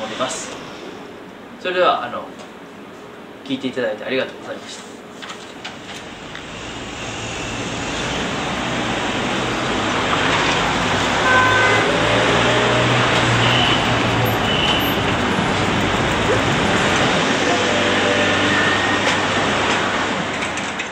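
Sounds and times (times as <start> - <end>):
passing road traffic: 6.0 - 20.9.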